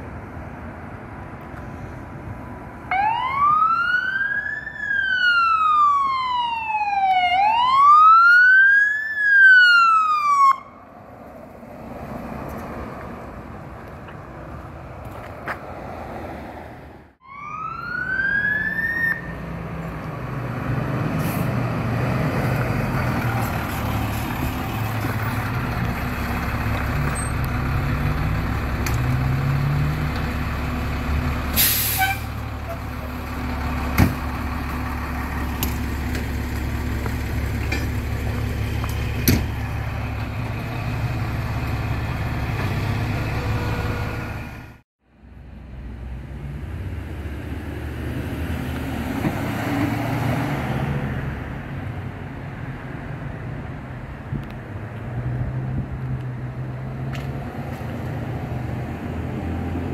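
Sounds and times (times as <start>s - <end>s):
diesel engine running: 19.8s - 47.7s.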